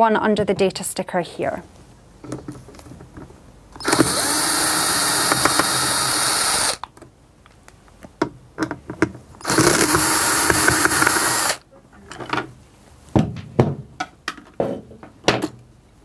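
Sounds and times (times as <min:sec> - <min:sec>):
cordless drill motor: 0:03.8 - 0:06.8, 0:09.4 - 0:11.6.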